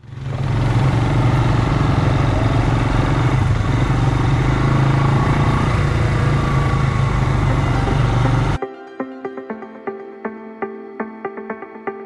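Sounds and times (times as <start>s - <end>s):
atv engine running: 0.0s - 8.6s.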